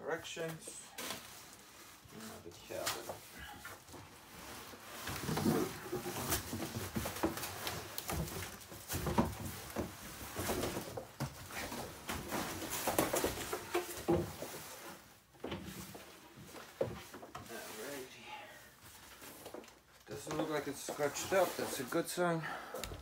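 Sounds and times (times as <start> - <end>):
plastic wrapping rustling: 0.0 - 23.0
cardboard scraping: 4.1 - 18.1, 18.9 - 22.2.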